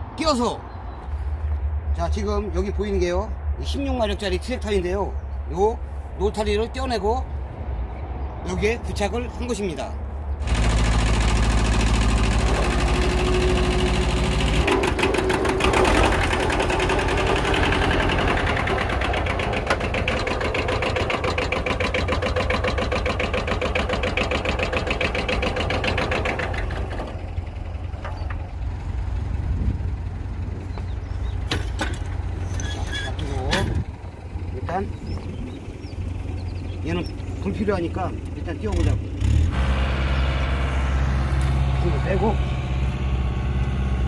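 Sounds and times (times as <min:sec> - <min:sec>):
tractor diesel engine clatter: 0:10.4 - 0:44.0.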